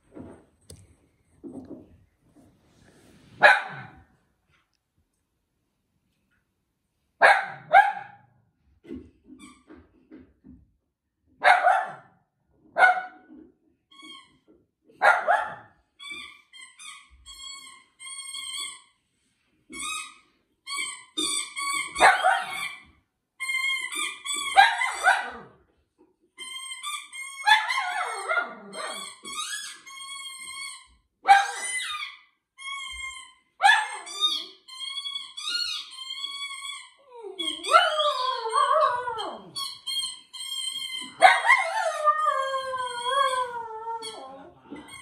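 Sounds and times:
puppy barking: 0:03.4 - 0:04.0, 0:07.2 - 0:08.3, 0:11.4 - 0:12.2, 0:12.8 - 0:13.3, 0:15.0 - 0:15.7, 0:22.0 - 0:22.7, 0:24.5 - 0:25.6, 0:31.2 - 0:31.7, 0:33.6 - 0:34.1, 0:41.0 - 0:41.8
squeaky toy squeaks: 0:13.9 - 0:19.0, 0:19.7 - 0:25.4, 0:26.4 - 0:45.0.

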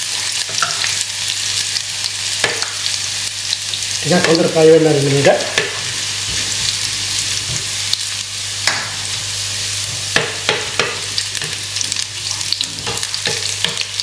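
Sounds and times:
garlic sizzling in oil: 0:00.0 - 0:14.0
spatula scraping and tapping pan: 0:09.9 - 0:11.6, 0:12.6 - 0:14.0.

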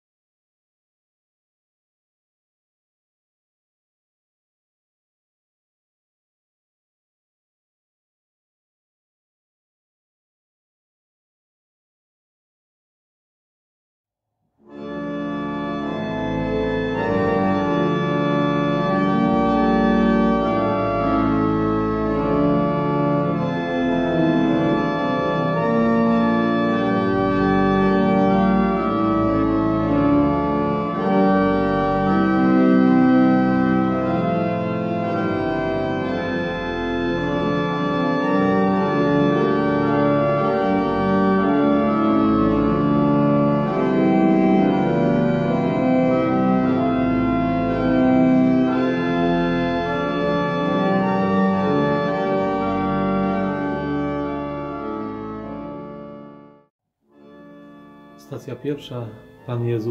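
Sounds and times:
organ chords: 0:14.6 - 0:59.9.

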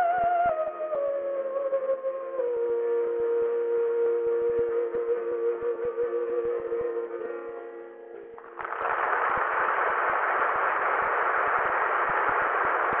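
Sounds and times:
audience applause: 0:08.4 - 0:13.0.

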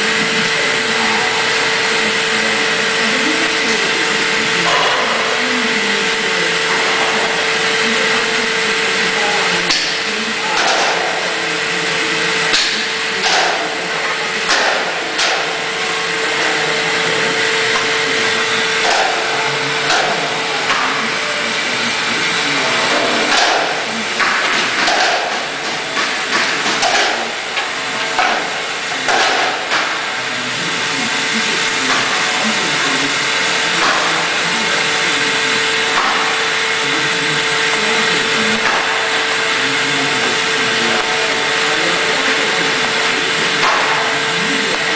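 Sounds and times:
machine hum: 0:00.0 - 0:44.9
knocks and clanks: 0:22.9 - 0:30.0.

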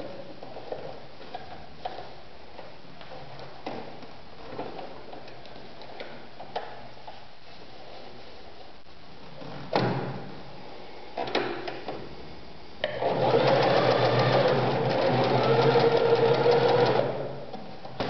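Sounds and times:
sewing machine clicks: 0:12.9 - 0:17.2
sewing machine stitching: 0:12.9 - 0:17.4.

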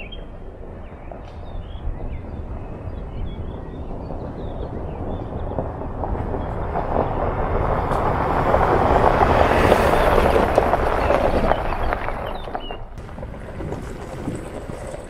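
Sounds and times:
vehicle engine running: 0:03.2 - 0:15.0
tyres on loose stones: 0:07.9 - 0:15.0.

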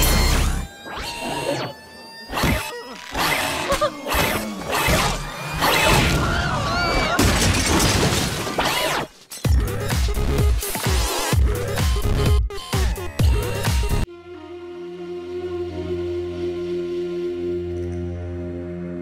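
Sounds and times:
crashing and smashing effects: 0:04.3 - 0:09.3
music: 0:09.4 - 0:19.0.

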